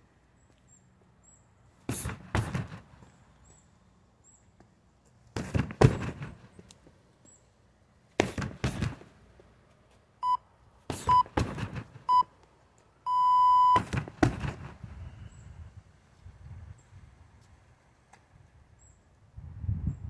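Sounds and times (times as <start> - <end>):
kicks thudding into heavy bag: 1.9 - 2.9, 5.4 - 6.4, 8.2 - 9.0, 10.9 - 11.9, 13.8 - 14.8
interval timer beeps: 13.1 - 13.8.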